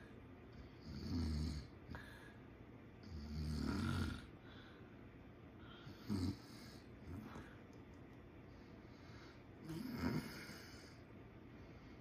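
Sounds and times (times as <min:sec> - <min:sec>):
man snoring: 0:00.8 - 0:01.7, 0:03.0 - 0:04.3, 0:05.9 - 0:07.2, 0:09.6 - 0:11.0.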